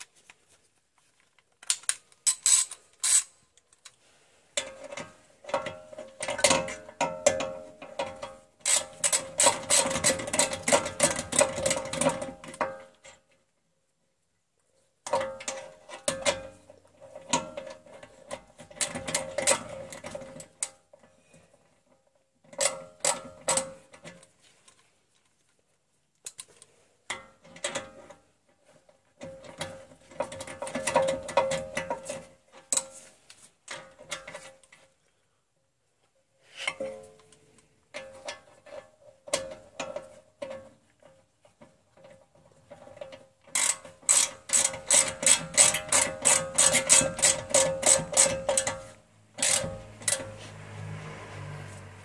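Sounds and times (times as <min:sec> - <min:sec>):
hand ratchet clicking: 0:01.6 - 0:03.4, 0:08.0 - 0:12.5, 0:43.0 - 0:50.4.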